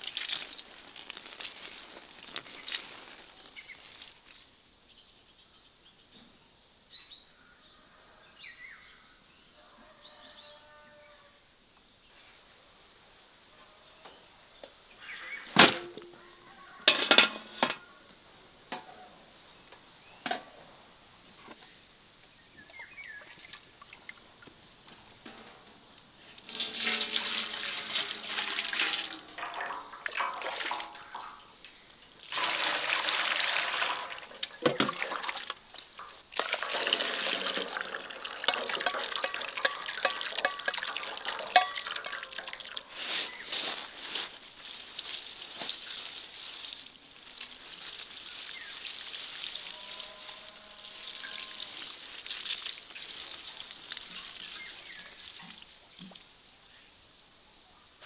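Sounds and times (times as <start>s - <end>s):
water pouring and splashing: 0.0s - 4.5s, 23.1s - 25.6s, 26.2s - 56.6s.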